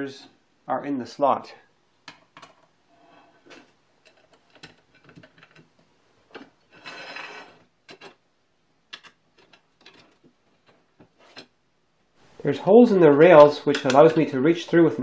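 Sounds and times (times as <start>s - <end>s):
metal parts clicking and knocking: 4.0s - 5.7s, 8.9s - 10.8s
metal scraping: 6.4s - 8.2s.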